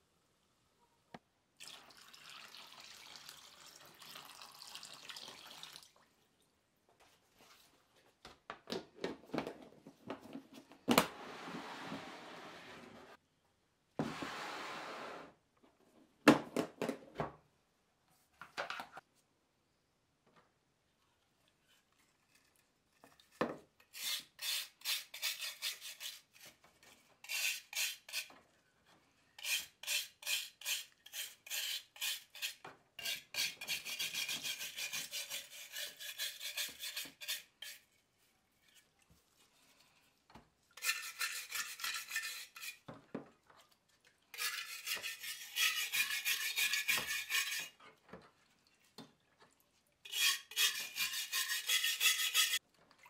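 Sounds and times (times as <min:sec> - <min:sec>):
wire brush scrubbing rusty metal: 0:29.4 - 0:38.1, 0:40.8 - 0:42.9, 0:44.4 - 0:47.8, 0:50.1 - 0:52.6.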